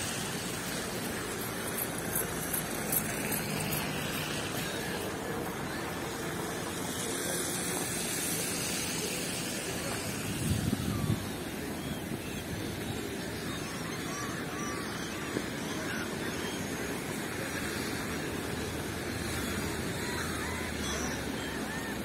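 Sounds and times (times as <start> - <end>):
distant town traffic: 0.0 - 22.0.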